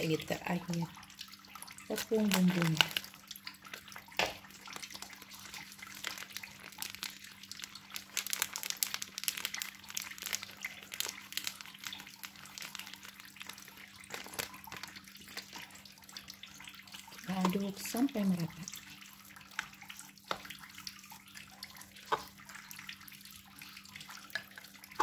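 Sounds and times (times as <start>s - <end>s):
plastic packet crinkling: 1.9s - 15.8s.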